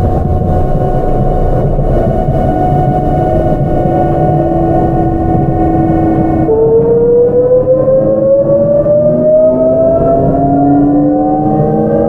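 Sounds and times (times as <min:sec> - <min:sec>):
train running noise: 0:00.0 - 0:09.1.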